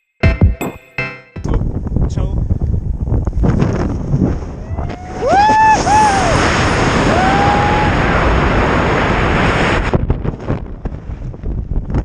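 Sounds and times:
freefall wind buffeting microphone: 1.5 - 12.0
person whooping: 4.6 - 8.2.

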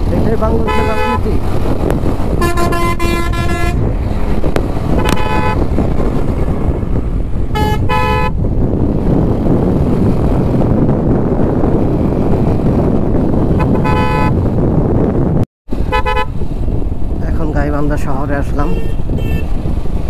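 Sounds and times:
wind noise: 0.0 - 20.0
horn honks: 0.6 - 1.3, 2.3 - 3.9, 4.9 - 5.7, 7.5 - 8.4, 13.5 - 14.4, 15.9 - 16.4, 18.6 - 19.5.

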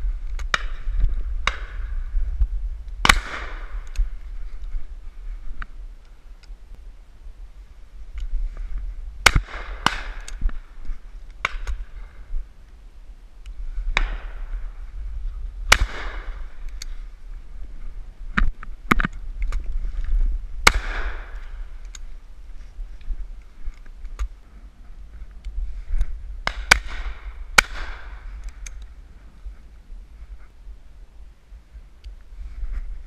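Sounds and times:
loud shotgun shots: 3.0 - 3.8, 9.2 - 10.3, 15.7 - 16.4, 20.6 - 21.4, 26.4 - 28.1.

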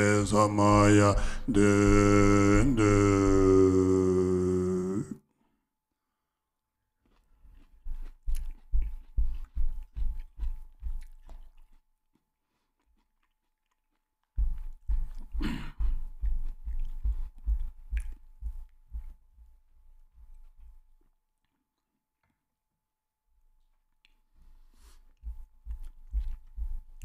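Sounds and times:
person chewing crunchy food: 7.0 - 19.2, 19.9 - 22.5, 23.6 - 27.0.

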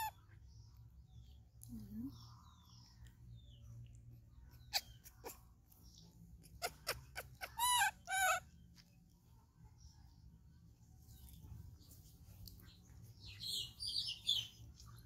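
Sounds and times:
high-pitched animal calls: 0.0 - 0.2, 4.5 - 5.8, 6.4 - 8.6.

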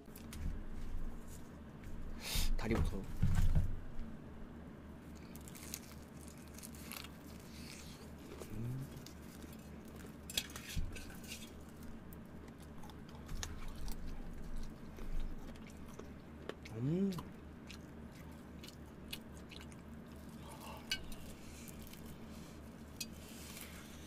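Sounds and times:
steady low hum: 0.0 - 24.0
person chewing crispy chicken: 5.0 - 24.0.

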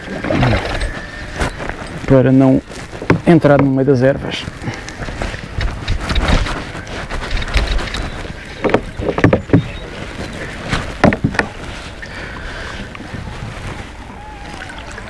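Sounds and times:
water splashing in a river: 12.7 - 15.0.

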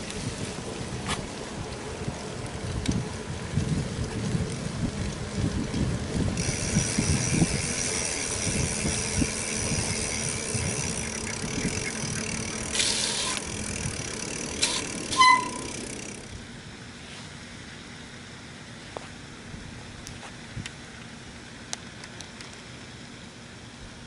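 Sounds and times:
bicycle frame rattling: 0.0 - 16.4
bicycle tyres rumbling on concrete: 0.0 - 16.4
short high squeal: 14.6 - 15.8.

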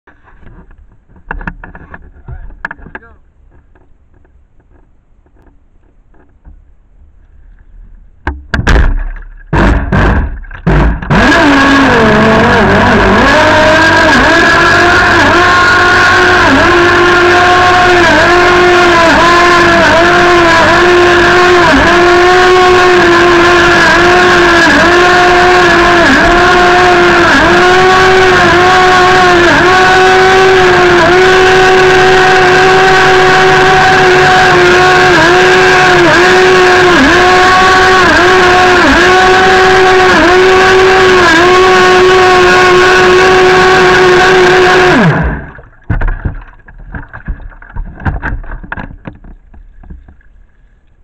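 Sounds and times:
rc boat motor revving: 9.5 - 47.1.

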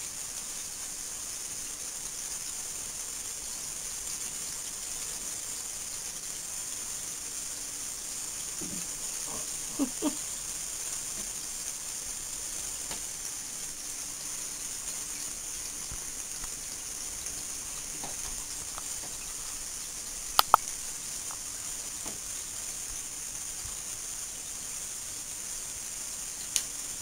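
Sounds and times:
steady hiss: 0.0 - 27.0.

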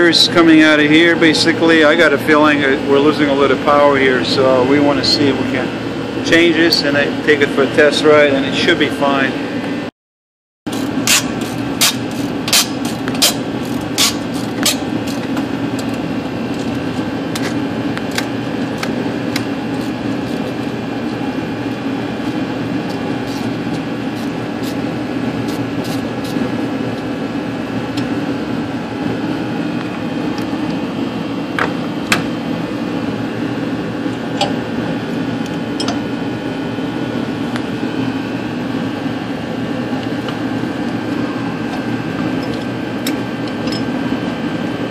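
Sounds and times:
loud mechanical drone: 0.0 - 9.9, 10.7 - 44.9.

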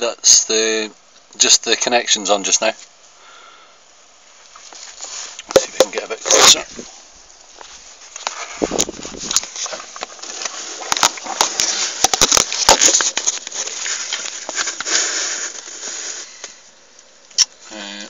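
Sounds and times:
camera scraping and rustling: 4.3 - 16.7.

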